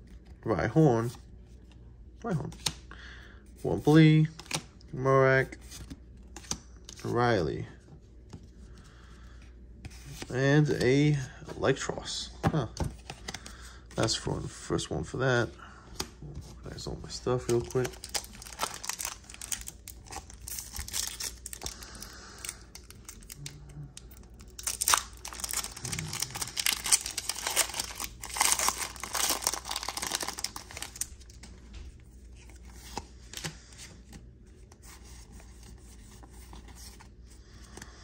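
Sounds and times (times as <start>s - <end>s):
cards being moved: 9.8s - 14.5s, 15.9s - 37.9s
foil wrapper crinkling and tearing: 17.4s - 31.4s.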